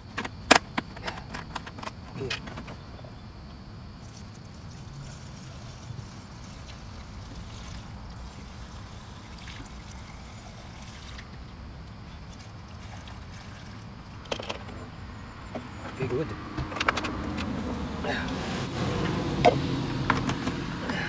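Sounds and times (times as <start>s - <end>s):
liquid trickling through funnel: 4.0s - 11.3s, 12.3s - 14.2s.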